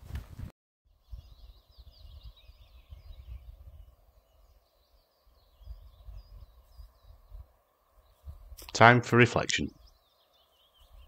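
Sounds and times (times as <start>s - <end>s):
wind rumble on microphone: 0.0s - 8.7s
songbird twittering: 0.9s - 8.7s, 9.6s - 11.0s.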